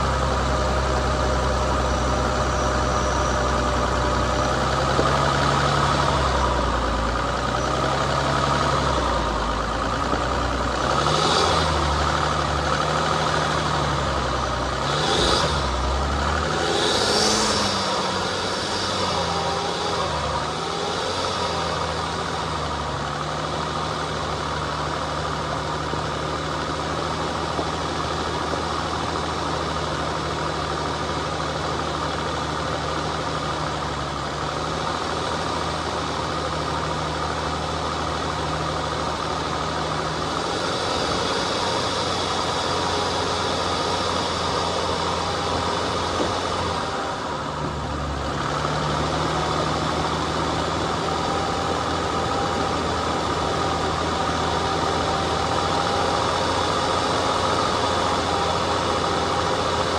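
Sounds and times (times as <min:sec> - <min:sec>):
vehicle engine running at low revs: 0:00.0 - 0:59.9.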